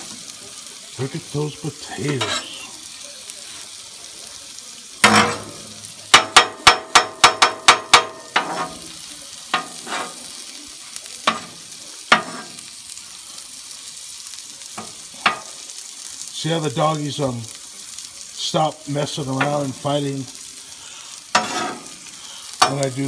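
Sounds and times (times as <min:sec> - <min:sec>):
food sizzling on griddle: 0:00.0 - 0:23.0
metal spatula scraping griddle: 0:01.9 - 0:02.7, 0:05.0 - 0:10.5, 0:11.2 - 0:12.7, 0:21.2 - 0:23.0
ringing spatula taps: 0:06.2 - 0:08.6.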